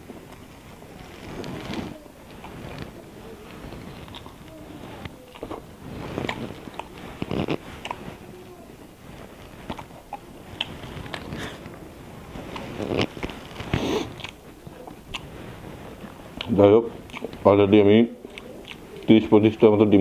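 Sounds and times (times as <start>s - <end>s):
fingers rustling food on plate: 0.0s - 20.0s
person chewing and smacking: 2.3s - 8.2s, 9.2s - 15.4s, 16.0s - 17.5s, 18.2s - 19.2s.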